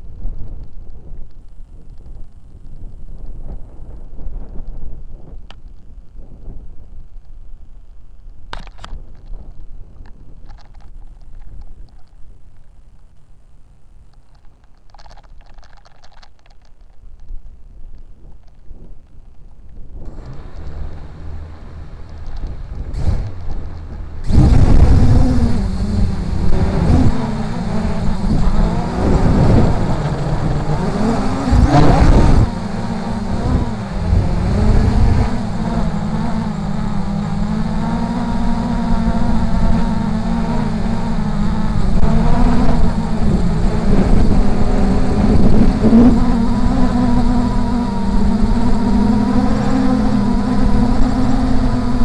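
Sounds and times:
wind buffeting microphone: 17.2 - 52.0
quadcopter propellers droning: 20.0 - 52.0.

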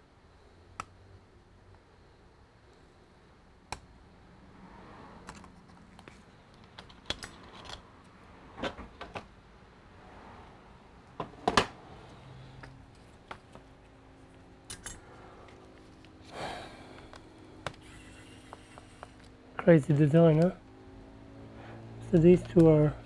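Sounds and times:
small tools clicking and tapping: 5.2 - 7.8, 14.7 - 16.1.

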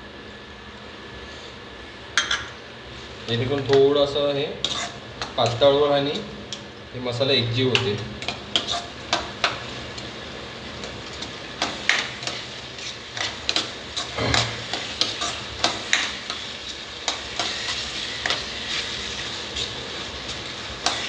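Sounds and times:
masala sizzling: 1.3 - 21.0
spatula scraping a pan: 4.6 - 5.8, 8.2 - 9.6, 11.1 - 21.0.

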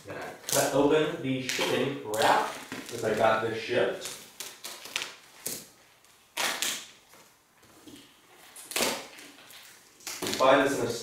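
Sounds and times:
shipping wrap ripping: 0.2 - 0.8, 1.4 - 7.0, 8.4 - 11.0.

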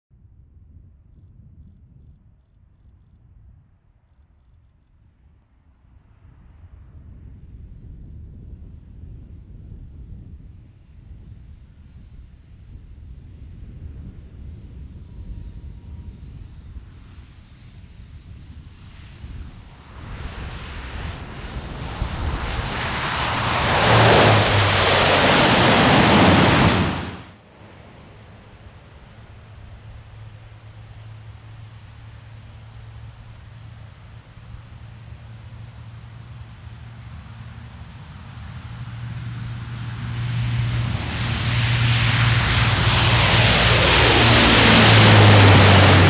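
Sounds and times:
turboprop aircraft drone: 0.5 - 46.0
turboprop engines roaring: 19.8 - 27.3, 34.2 - 46.0.

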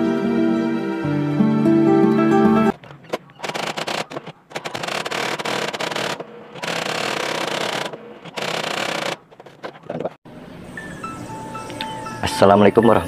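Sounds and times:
electronic typewriter clatter: 3.1 - 9.4.

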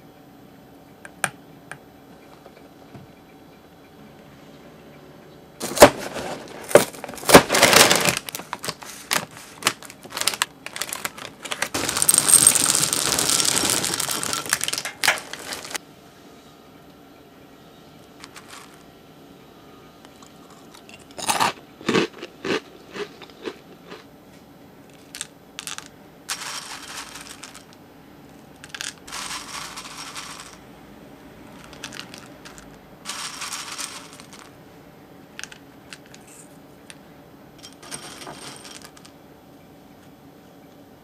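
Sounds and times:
cereal clinking in glass bowl: 5.6 - 15.8, 18.2 - 18.8, 25.0 - 27.8, 28.6 - 30.6, 31.5 - 34.5, 37.7 - 39.1
cereal rustling: 5.6 - 15.8, 18.2 - 18.8, 24.9 - 27.8, 28.6 - 30.6, 31.5 - 34.6.

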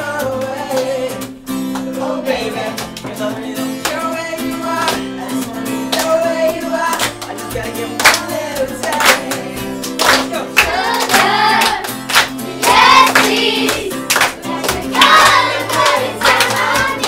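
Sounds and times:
acoustic guitar: 0.0 - 17.0
hands clapping: 0.4 - 2.0, 2.6 - 4.2, 4.8 - 17.0
children singing: 10.6 - 17.0.

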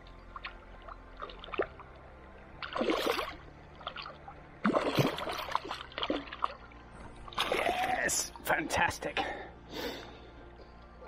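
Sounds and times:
fish splashing in water: 2.6 - 6.7.

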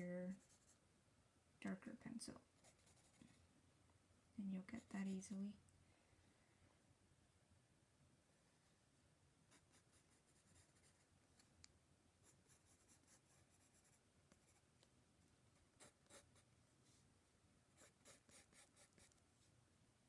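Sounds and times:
pencil scratching on paper: 2.6 - 3.4, 9.5 - 11.0, 12.2 - 14.6, 15.8 - 16.5, 17.8 - 19.2.

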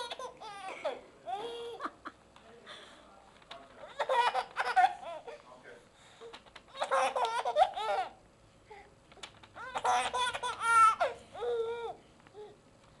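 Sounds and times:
baby laughing: 0.0 - 2.1, 3.9 - 5.4, 6.7 - 8.2, 9.6 - 12.0.

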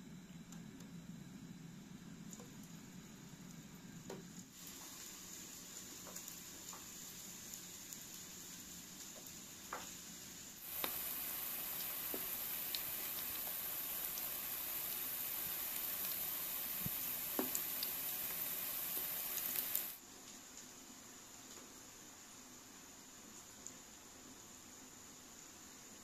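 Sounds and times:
slices sizzling in hot oil: 4.3 - 20.0.

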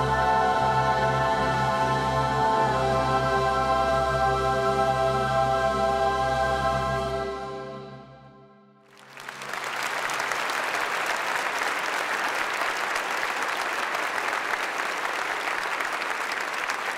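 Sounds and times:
boys' choir singing: 0.0 - 7.4
audience applauding: 8.9 - 16.9.

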